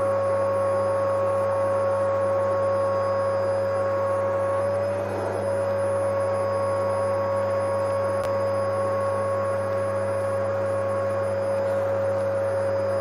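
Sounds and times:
vacuum cleaner motor running: 0.0 - 13.0.

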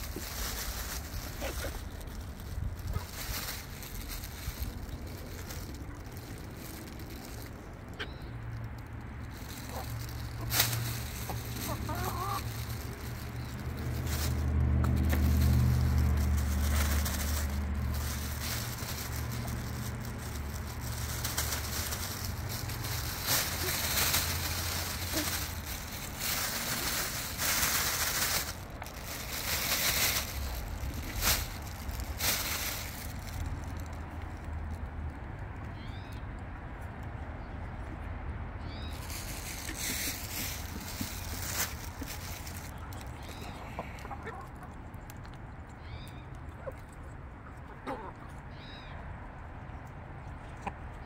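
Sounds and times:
hens clucking softly: 11.2 - 12.5, 43.1 - 45.1, 46.5 - 48.4.

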